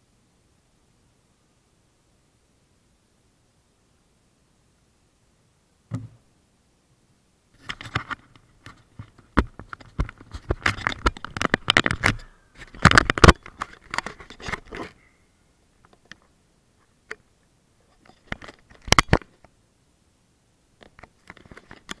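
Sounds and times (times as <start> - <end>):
handling noise on camera body: 7.6 - 15.0, 20.8 - 22.0.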